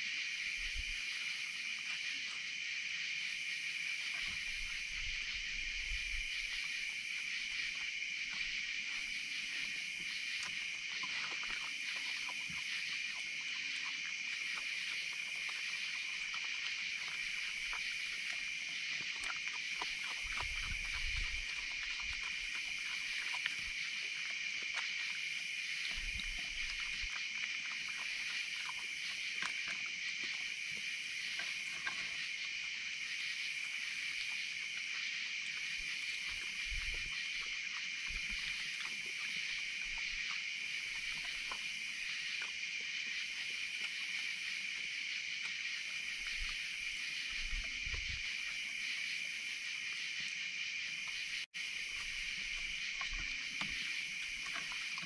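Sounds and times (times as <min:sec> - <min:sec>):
insect high trill: 0:00.0 - 0:55.0
insect pulsing: 0:00.0 - 0:55.0
animals crunching food: 0:08.4 - 0:25.2.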